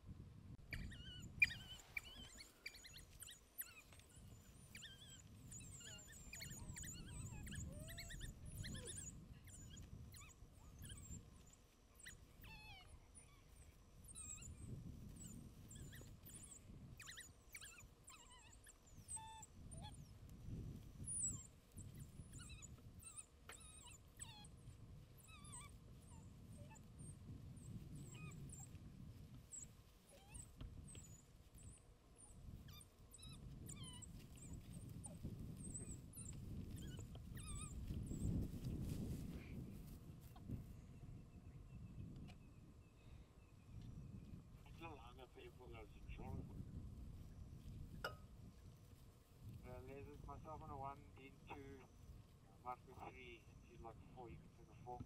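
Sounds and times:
wild dogs twittering chirps: 0.7s - 24.6s, 29.4s - 38.5s, 49.7s - 55.0s.

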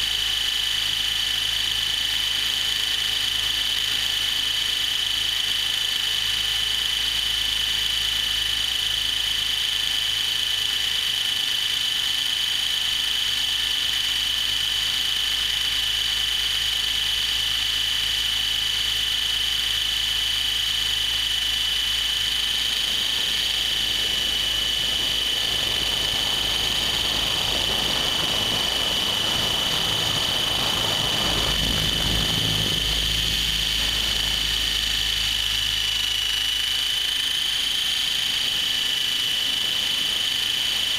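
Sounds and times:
rc helicopter motor whine: 0.0s - 40.9s
rotor hum: 0.0s - 40.9s
rushing noise: 22.7s - 36.6s.

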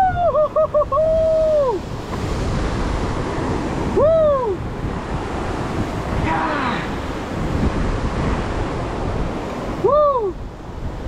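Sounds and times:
wind on microphone: 0.0s - 11.0s
surf breaking on rocks: 1.1s - 9.9s.

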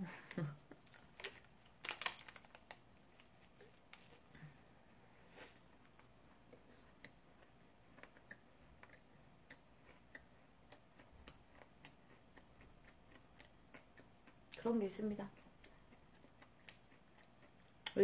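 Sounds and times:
paper wrapper clicks while eating: 0.8s - 4.2s.

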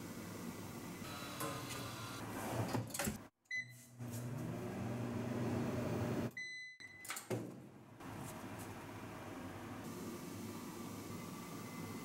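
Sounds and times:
microwave beep: 3.5s - 3.9s, 6.3s - 7.2s
microwave humming: 4.0s - 6.5s.

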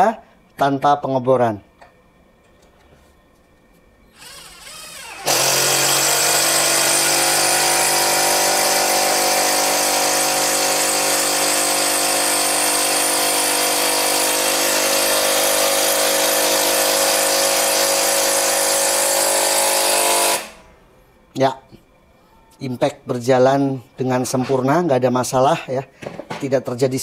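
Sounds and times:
impact driver driving screw into wood: 4.2s - 20.6s.

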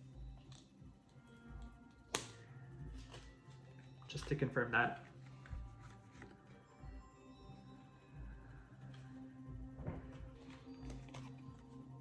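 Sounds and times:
soft ambient music: 0.0s - 12.0s
cards tapping and rustling: 4.0s - 6.6s, 9.8s - 11.8s.

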